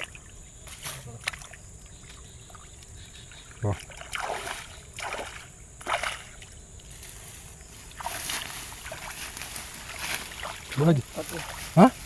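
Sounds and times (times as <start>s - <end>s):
hands sloshing in muddy water: 3.6s - 6.4s, 7.9s - 12.0s.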